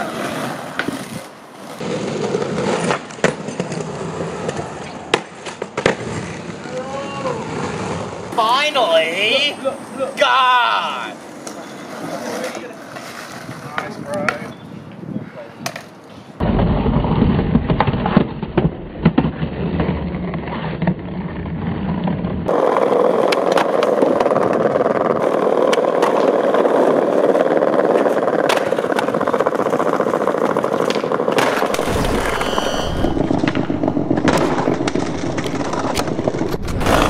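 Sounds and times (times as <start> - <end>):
skateboard clacks: 0.0 - 6.9, 15.6 - 15.9, 22.5 - 31.7
skateboard wheels rolling on concrete: 0.0 - 31.8, 34.2 - 37.0.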